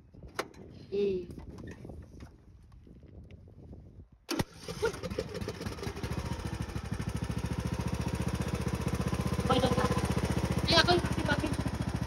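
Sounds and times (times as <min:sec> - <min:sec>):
lawn tractor engine running: 0:04.3 - 0:12.0.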